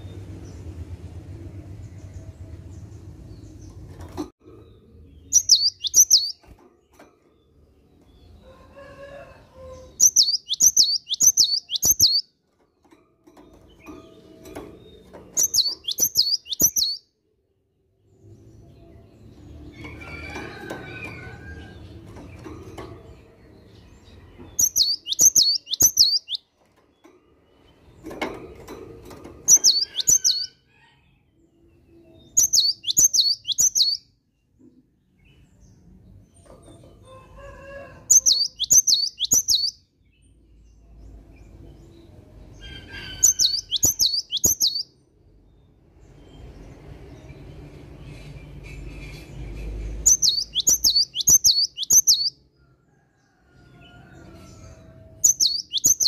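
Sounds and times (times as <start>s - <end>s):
bird whistling song: 5.3s - 6.5s, 10.0s - 12.3s, 15.4s - 17.0s, 24.6s - 26.4s, 29.5s - 30.6s, 32.3s - 34.0s, 38.1s - 39.8s, 43.0s - 44.9s, 50.1s - 52.4s, 55.2s - 56.0s.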